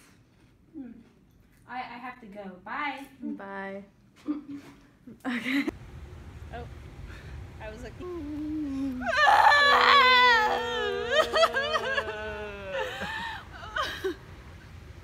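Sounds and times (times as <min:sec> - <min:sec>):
person crying and wailing: 0:08.0 - 0:14.2.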